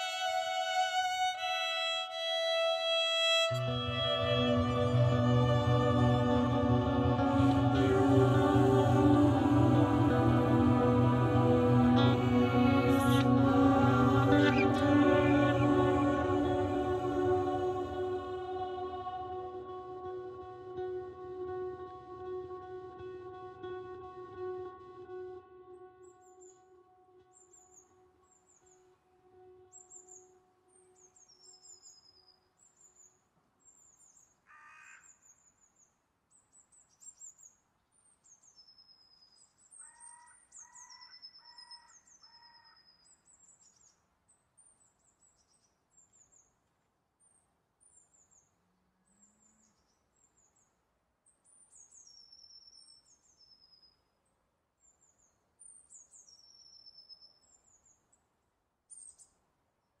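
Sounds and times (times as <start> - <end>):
held musical note: 3.3 - 26.0.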